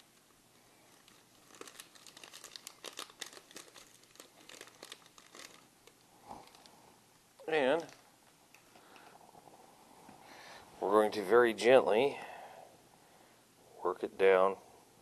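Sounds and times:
plastic bag crinkling and tearing: 0.8s - 6.7s, 7.4s - 8.0s.

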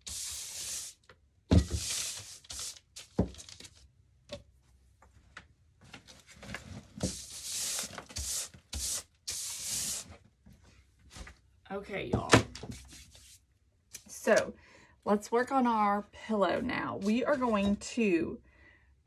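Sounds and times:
brushing dust off surface: 0.0s - 1.0s, 1.6s - 2.8s, 7.0s - 10.1s.

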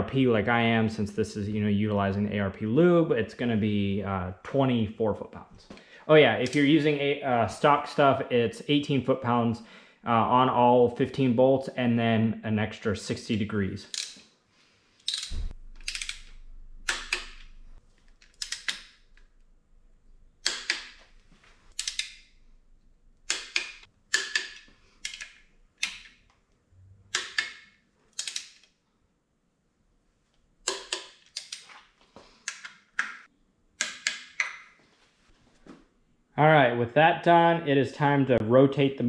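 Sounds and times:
torque wrench clicking: 15.1s - 17.5s, 21.7s - 22.2s.

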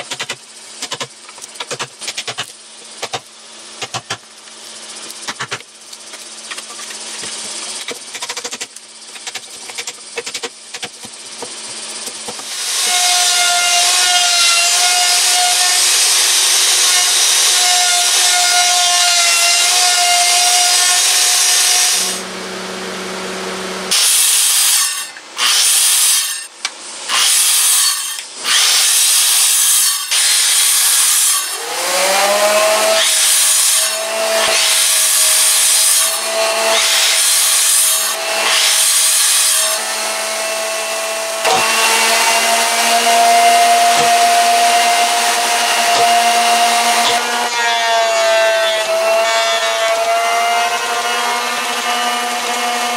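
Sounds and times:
circular saw whining: 0.0s - 52.9s
electric router cutting wood: 11.6s - 26.4s, 27.1s - 52.9s
saw rasping through wood: 23.9s - 26.5s, 27.1s - 52.9s.

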